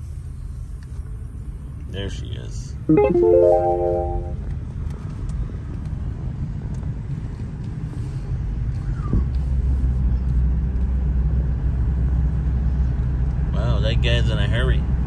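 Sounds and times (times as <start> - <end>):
car road and engine rumble: 4.8 - 15.0.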